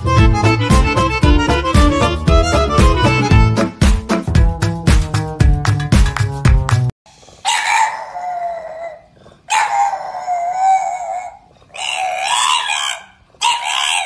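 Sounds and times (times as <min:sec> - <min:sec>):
puppy howling: 0:07.4 - 0:14.0.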